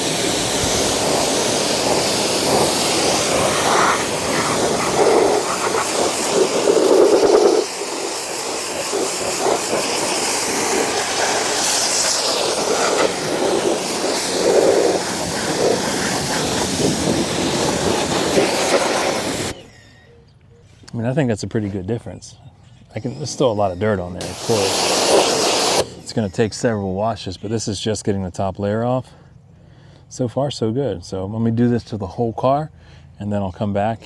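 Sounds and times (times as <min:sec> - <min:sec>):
water jet hissing on car: 0:00.0 - 0:19.6, 0:24.2 - 0:25.9.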